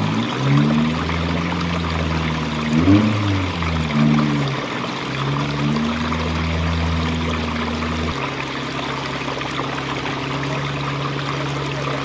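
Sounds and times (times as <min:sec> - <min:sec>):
low hum: 0:00.0 - 0:12.0
water rushing over rocks: 0:00.0 - 0:12.0.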